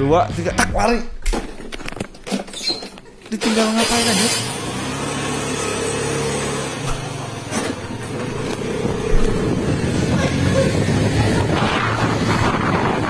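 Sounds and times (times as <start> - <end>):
road and air noise: 3.4 - 13.0
scooter engine running: 3.4 - 13.0.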